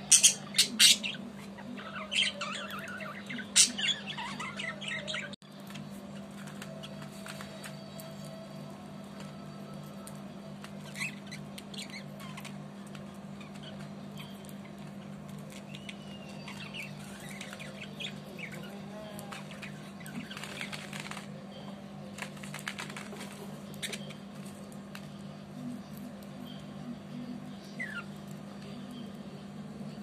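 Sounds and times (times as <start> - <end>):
budgerigars chirping and chattering: 0.0 - 5.4, 10.8 - 12.5, 13.4 - 21.2, 27.6 - 28.3
budgie pecking and tearing leaves: 5.6 - 21.4, 22.0 - 26.7.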